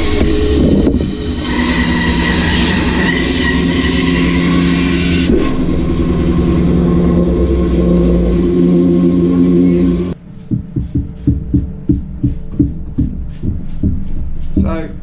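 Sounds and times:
bandsaw motor hum: 0:00.0 - 0:10.2.

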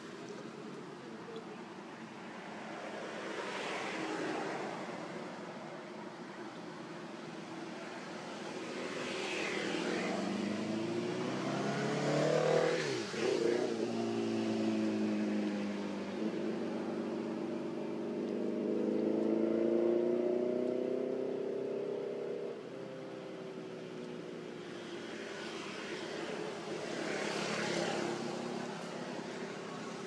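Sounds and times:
vehicle engine passing by: 0:09.2 - 0:16.0.

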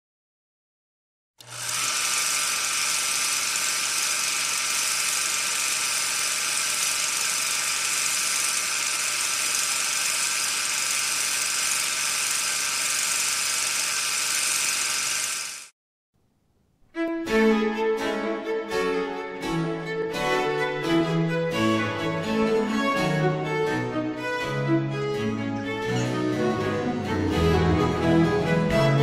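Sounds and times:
small motor whirring: 0:01.4 - 0:15.7.

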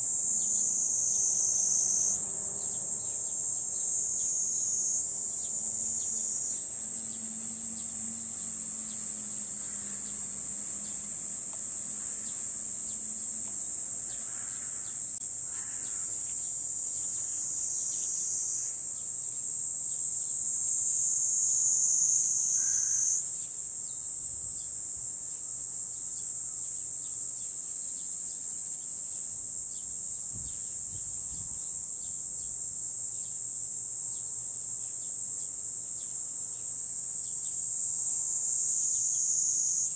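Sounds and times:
cicadas droning: 0:00.0 - 0:39.9.

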